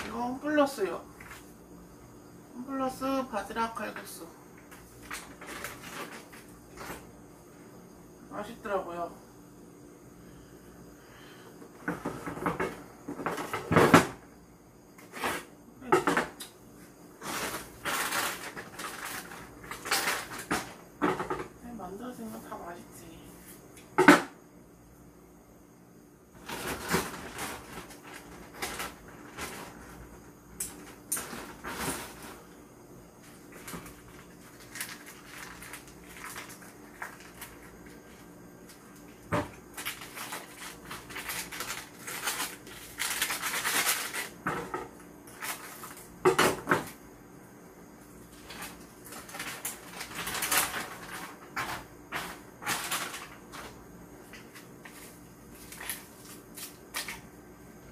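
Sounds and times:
plastic packets crinkling: 17.3s - 20.5s, 26.4s - 30.0s, 33.5s - 38.8s, 39.7s - 44.4s, 48.4s - 53.8s, 54.8s - 57.2s.

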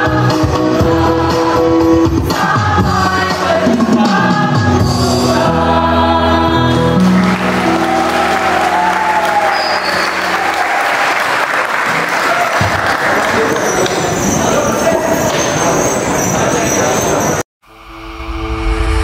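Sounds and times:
choir singing a held chord: 0.0s - 10.6s
audience applause: 7.0s - 15.2s.

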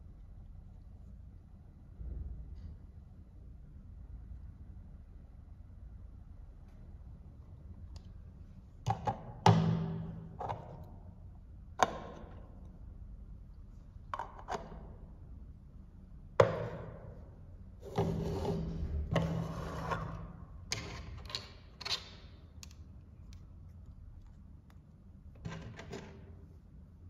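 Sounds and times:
plastic scraping on tabletop: 17.8s - 21.0s.

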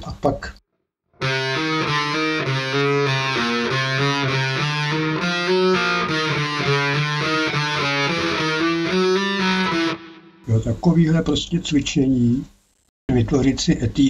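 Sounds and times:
electric guitar single notes: 1.2s - 10.5s.

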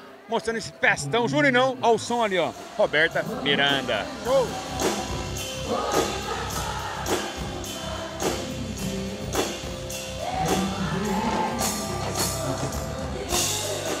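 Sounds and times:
live band music: 2.1s - 14.0s
steady drum beat: 2.8s - 14.0s
woman singing: 4.6s - 14.0s.

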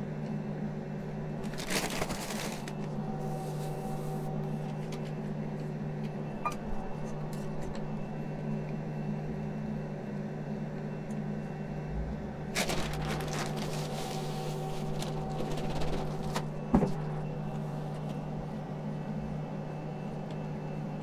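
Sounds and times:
induction hob humming: 0.0s - 21.0s
plastic bag crinkling: 1.4s - 2.9s, 12.6s - 16.4s.

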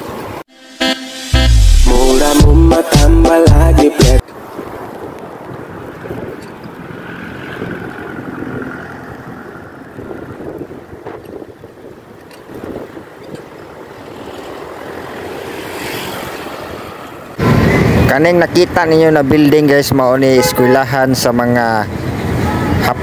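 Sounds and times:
street traffic passing: 0.0s - 23.0s
wind buffeting microphone: 4.3s - 15.5s.

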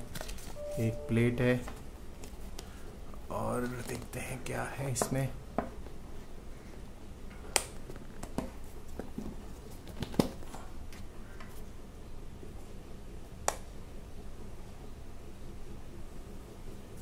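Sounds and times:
cardboard packaging clicks and taps: 7.5s - 10.5s.

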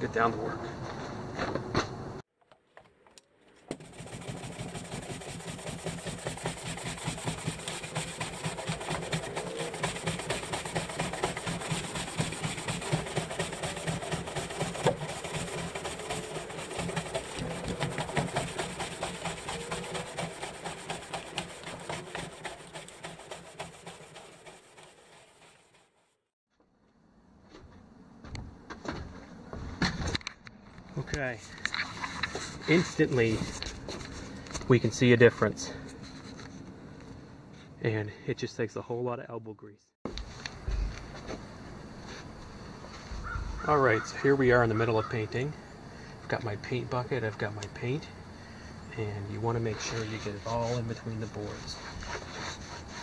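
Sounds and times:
brush scrubbing wooden boards: 3.6s - 26.0s, 31.9s - 36.4s, 41.3s - 45.4s, 48.9s - 53.0s.

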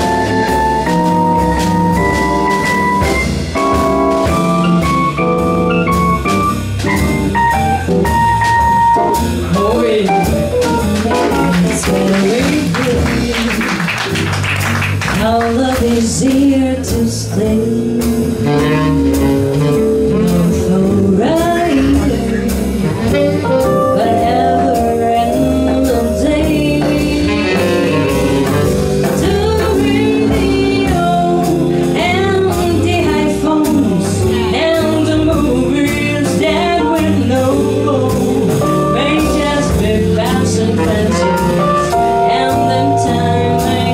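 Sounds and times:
swing jazz band playing: 0.0s - 43.9s
woman singing into microphone: 11.1s - 13.8s, 15.1s - 28.3s, 29.1s - 43.9s.

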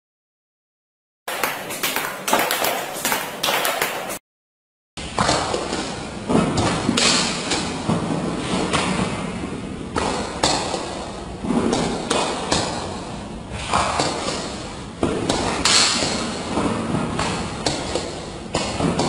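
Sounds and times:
table tennis balls clicking: 1.3s - 4.2s.

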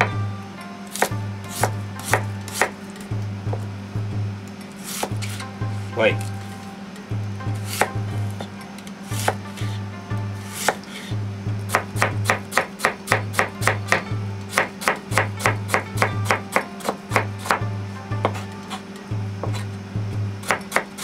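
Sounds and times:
knife chopping on plastic board: 0.9s - 2.8s, 7.6s - 8.5s, 10.5s - 11.1s, 11.7s - 17.6s, 18.2s - 18.8s, 19.4s - 19.7s, 20.4s - 21.0s.

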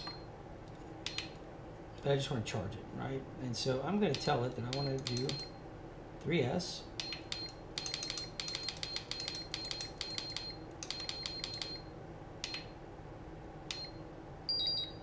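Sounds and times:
charger button beeps: 4.2s - 5.5s, 7.0s - 12.7s, 13.7s - 15.0s.

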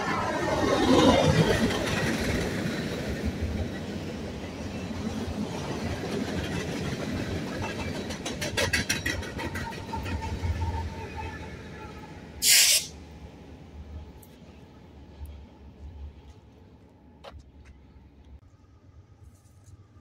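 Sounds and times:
diesel locomotive engine rumble: 0.0s - 20.0s
train wheels clicking over rail joints: 4.8s - 11.1s
short loud hiss: 12.4s - 13.0s.

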